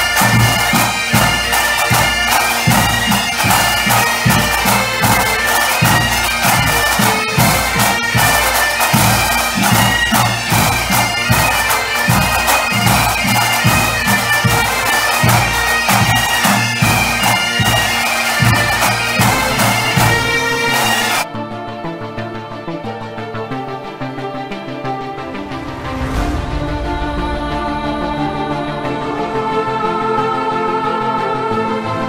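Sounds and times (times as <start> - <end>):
bagpipes playing a tune: 0.0 - 21.3
drums beating: 0.0 - 21.3, 25.3 - 30.1.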